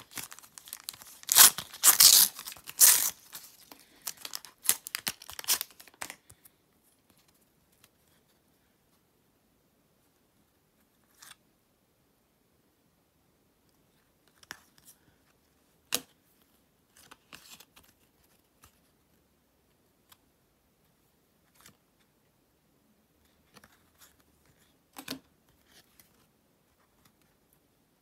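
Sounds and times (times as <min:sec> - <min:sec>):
trading cards shuffling: 0:00.0 - 0:06.3.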